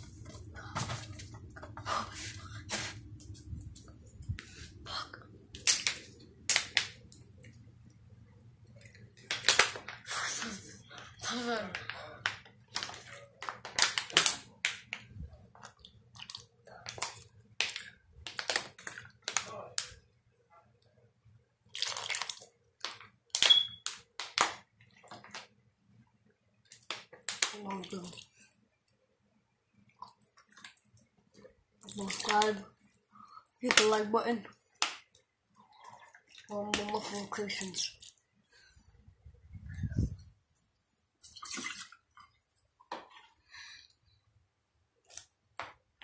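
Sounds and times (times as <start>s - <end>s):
plastic bottle clicking and crackling: 11.7s - 20.0s, 22.0s - 25.5s.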